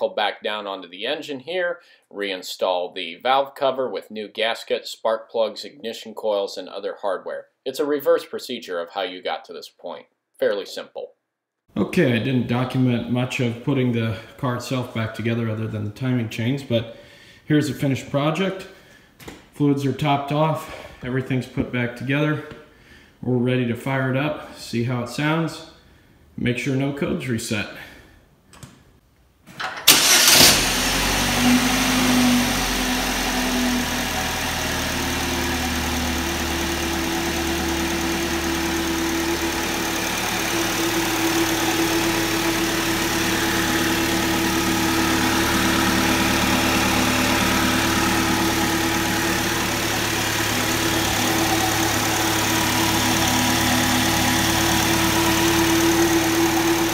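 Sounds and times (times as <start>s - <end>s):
car engine starting and idling: 29.6s - 56.9s.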